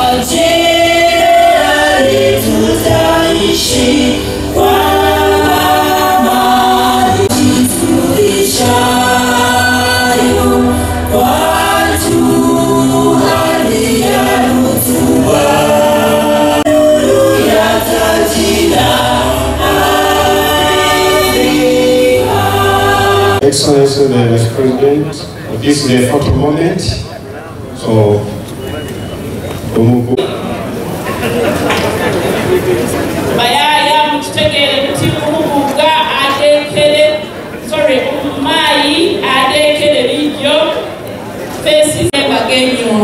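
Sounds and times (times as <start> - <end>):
choir and crowd singing anthem: 0.0 - 23.9.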